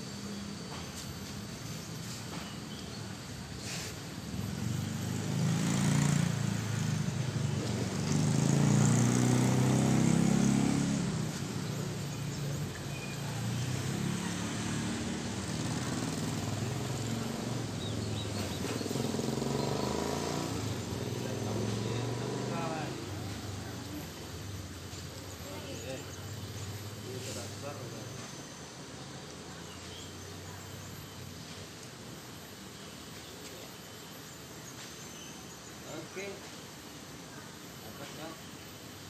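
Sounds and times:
small motorcycle engine running: 0:00.1 - 0:31.3.

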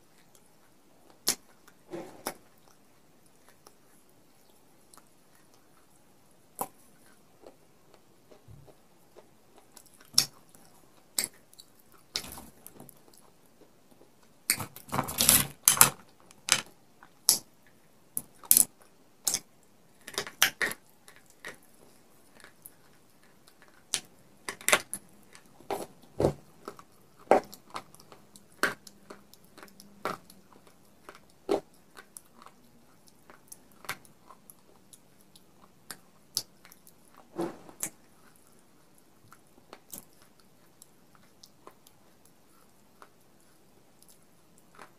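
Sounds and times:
clay ball cracking and crunching: 0:18.2 - 0:44.9.

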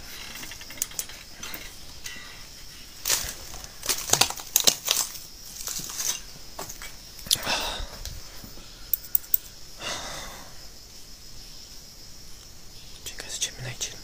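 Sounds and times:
footsteps crunching over dry leaves: 0:03.0 - 0:06.9.

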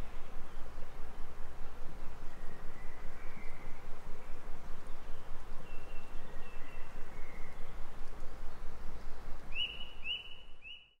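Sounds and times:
steady background hiss: 0:00.0 - 0:11.0
faint bird chirps: 0:02.0 - 0:08.0, 0:09.0 - 0:11.0.

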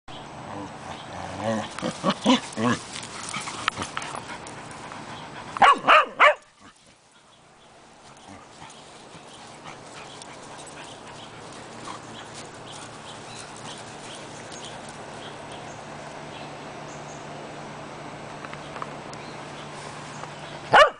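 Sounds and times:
dogs yipping: 0:01.6 - 0:07.3
dog barking sharply: 0:05.6 - 0:06.4.

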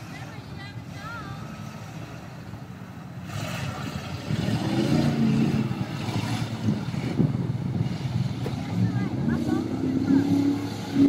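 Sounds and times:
other engines running: 0:00.0 - 0:11.0
suv engine revving hard: 0:03.2 - 0:11.0.

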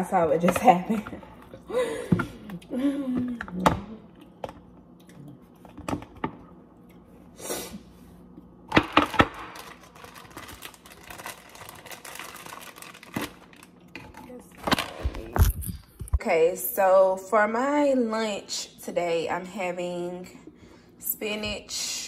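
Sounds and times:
plastic zipper bag crinkling: 0:09.0 - 0:13.8.

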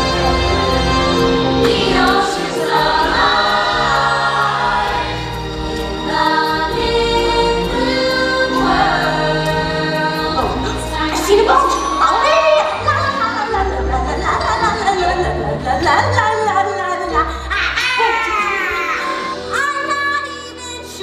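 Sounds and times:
choir singing over music: 0:00.0 - 0:15.8.

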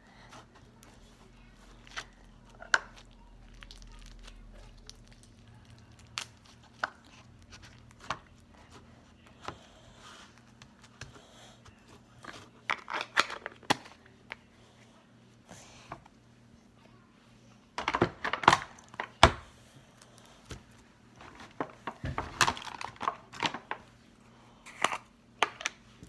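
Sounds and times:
sticky crackles and pops of slime: 0:02.8 - 0:08.3.

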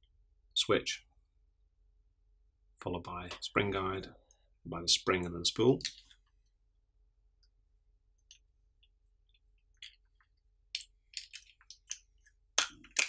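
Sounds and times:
small parts clicking and tapping: 0:05.8 - 0:06.3, 0:08.2 - 0:13.0.

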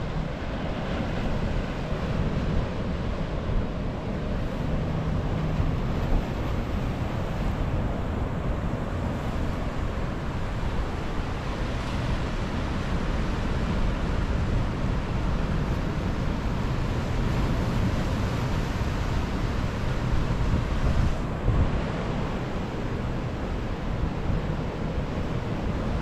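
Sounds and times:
surf washing over rocks: 0:00.0 - 0:26.0.

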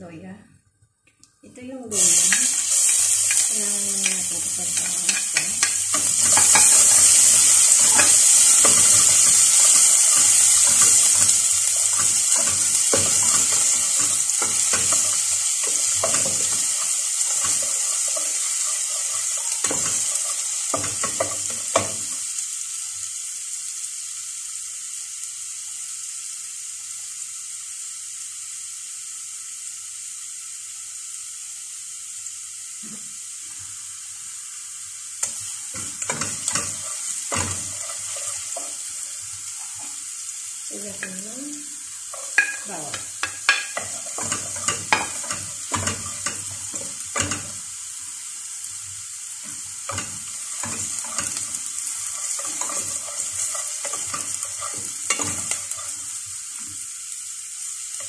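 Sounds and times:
ginger sizzling in hot oil: 0:01.5 - 0:58.0
spatula scraping and tapping pot: 0:02.3 - 0:22.2, 0:35.2 - 0:38.8, 0:42.1 - 0:47.6, 0:49.4 - 0:56.0.

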